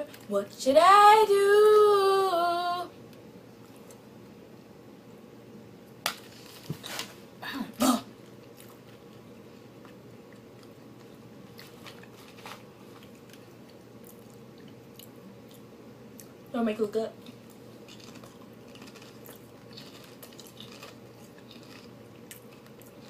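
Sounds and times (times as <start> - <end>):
biting and chewing: 17.2 - 23.0.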